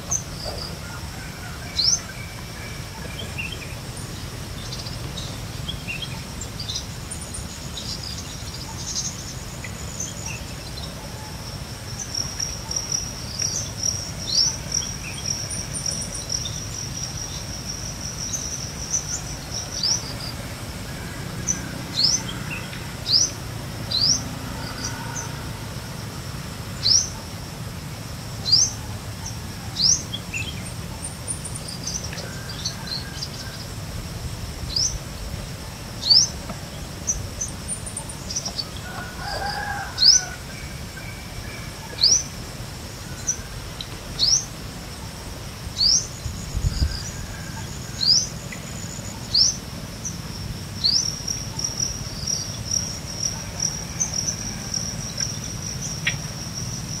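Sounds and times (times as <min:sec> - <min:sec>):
high-pitched insect trill: 0:28.4 - 0:57.0.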